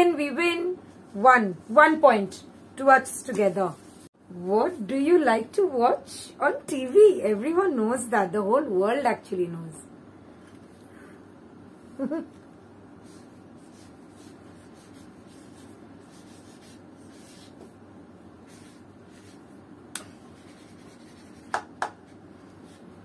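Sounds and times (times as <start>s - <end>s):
marker pen scratching on paper: 13.0s - 17.8s, 18.4s - 21.8s.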